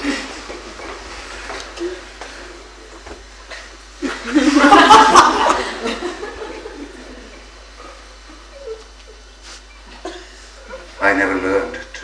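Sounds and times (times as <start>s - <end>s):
audience laughing: 3.6s - 7.5s.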